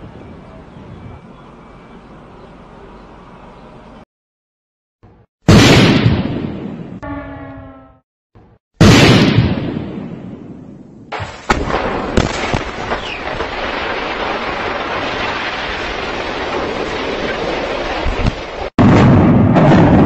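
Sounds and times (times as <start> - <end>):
loud explosive blast: 5.5 - 7.0, 8.8 - 20.0
collapse and falling debris: 11.1 - 20.0
demolition charge cracks: 11.1 - 20.0.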